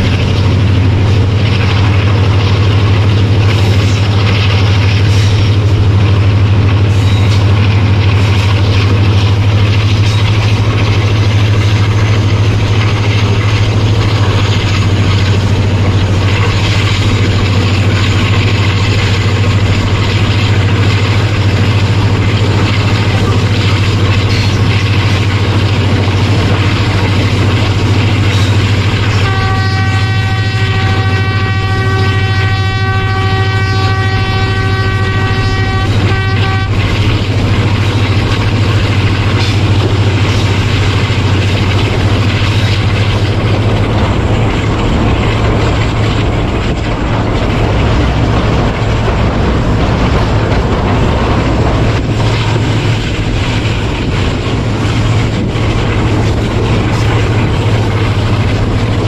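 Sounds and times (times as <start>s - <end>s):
diesel locomotive drone: 0.0s - 59.0s
train horn: 28.5s - 37.8s.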